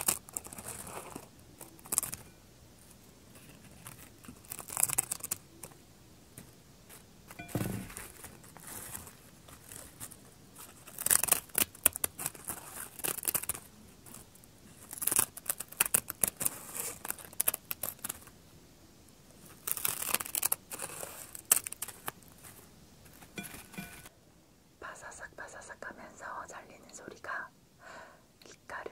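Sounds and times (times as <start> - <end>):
soft rustling: 0.0 - 18.4, 19.3 - 24.1
scissors crunching dried seaweed: 3.7 - 5.4, 10.8 - 18.3, 19.5 - 22.2.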